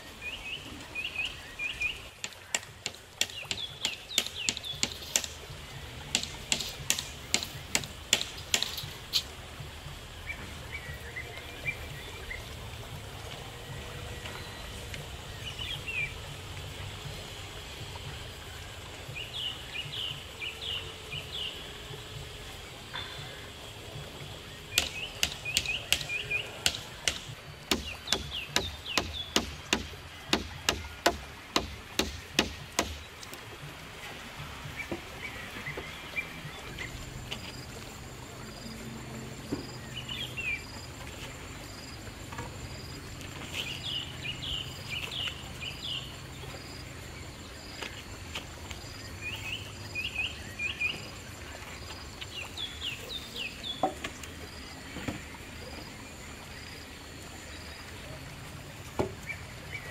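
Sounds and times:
birds chirping: 0.0 - 59.9
sharp knocks: 2.2 - 5.4, 6.1 - 9.0, 24.8 - 33.1.

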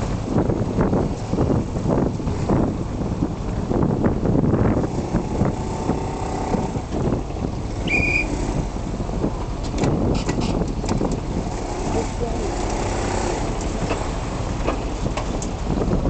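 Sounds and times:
ferry engine running: 0.0 - 16.0
motorbike engine rumble: 0.0 - 16.0
short high beep: 7.9 - 8.3
sharp clicks and knocks: 9.6 - 11.3, 13.5 - 15.6.

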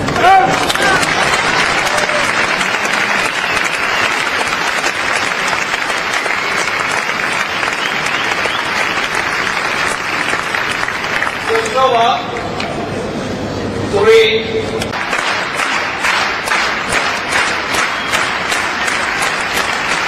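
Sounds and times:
crowd applauding: 0.0 - 12.0, 14.9 - 20.0.

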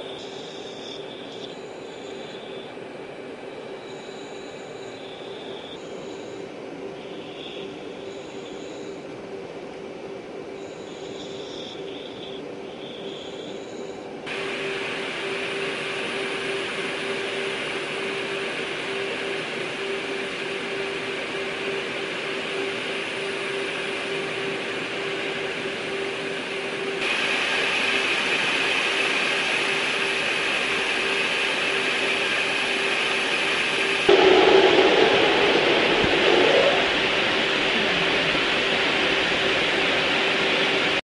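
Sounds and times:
aircraft engine and airflow: 14.0 - 41.0.

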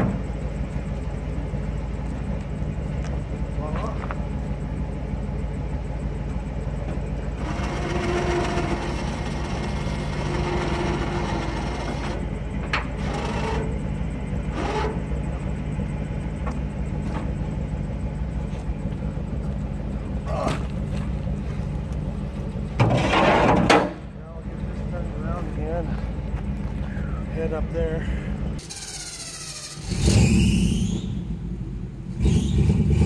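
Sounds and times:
truck engine idling: 0.0 - 33.0
electric winch whirring: 7.2 - 15.9, 28.6 - 31.3.

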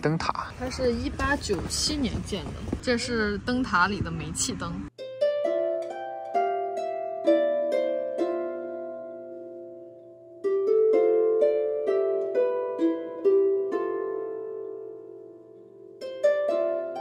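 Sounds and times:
gentle melody of ringing notes: 5.0 - 17.0.

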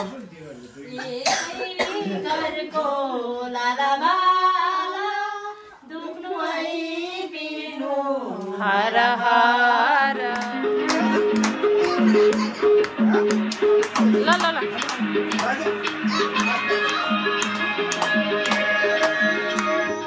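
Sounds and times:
women singing: 0.9 - 11.8, 16.4 - 20.0
plucked-string melody: 10.2 - 20.0.

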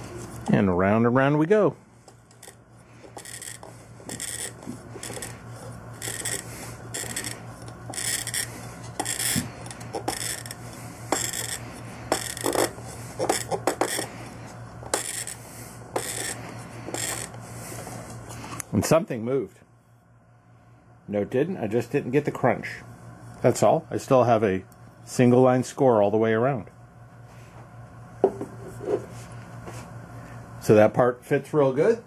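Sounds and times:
glass cutter scoring bottle: 2.1 - 17.4.

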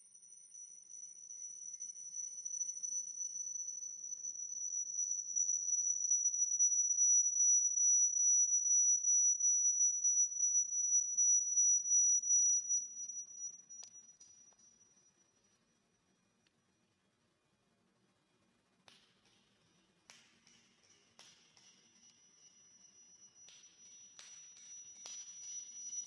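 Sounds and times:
high-pitched audio feedback squeal: 0.0 - 15.1, 21.8 - 26.0.

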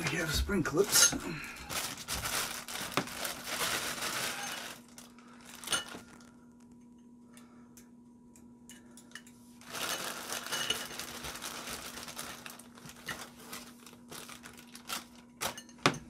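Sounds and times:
plastic bag crinkling: 0.0 - 6.5, 9.6 - 15.7.

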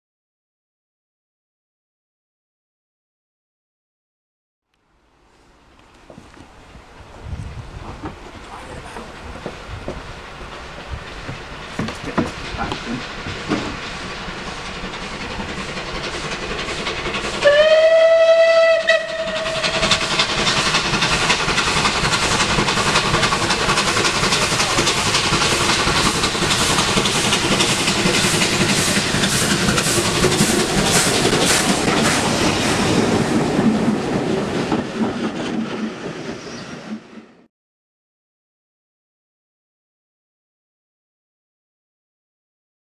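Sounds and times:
steam locomotive exhaust beats: 5.8 - 37.5
coaches rattling over rail joints: 7.8 - 17.4, 19.2 - 37.3
steam locomotive whistle: 17.4 - 20.2.

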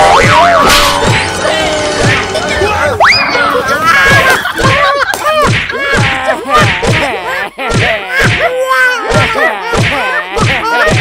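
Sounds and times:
springy bending tone: 0.0 - 3.9
comedy whacks and thuds: 4.6 - 8.5, 9.1 - 11.0.

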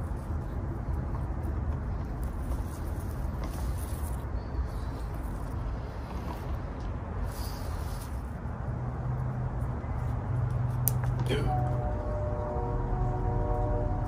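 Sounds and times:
low steady hum: 8.0 - 14.0.

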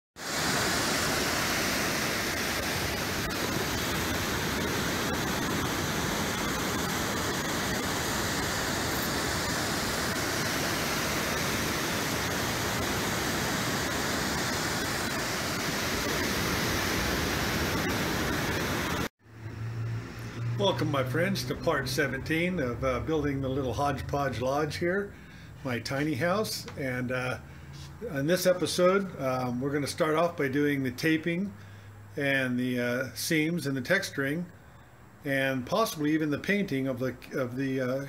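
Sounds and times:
ocean waves breaking: 0.2 - 19.1.

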